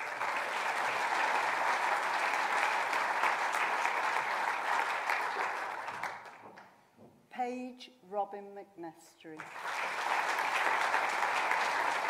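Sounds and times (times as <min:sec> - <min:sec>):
audience applauding: 0:00.0 - 0:06.6, 0:09.4 - 0:12.0.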